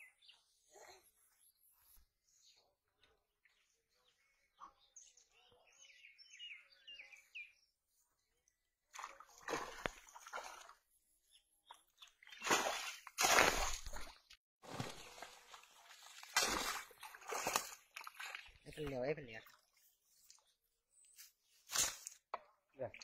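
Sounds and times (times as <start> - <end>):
birds chirping: 0.0 - 8.3, 11.2 - 13.2, 17.8 - 21.6
water splashing and churning: 8.9 - 10.8, 12.3 - 19.6
fish thrashing in net: 16.2 - 18.2.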